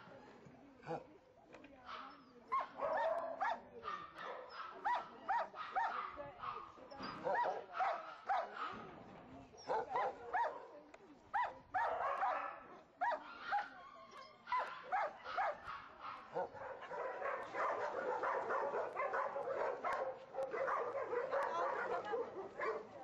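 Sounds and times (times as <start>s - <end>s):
dogs barking: 1.9s - 8.8s, 11.4s - 13.7s, 14.5s - 22.9s.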